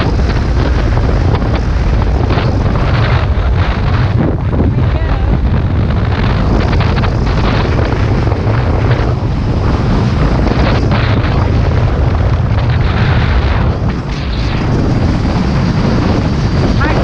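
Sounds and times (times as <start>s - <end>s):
speedboat engine rumble: 0.0s - 17.0s
wind buffeting microphone: 0.0s - 17.0s.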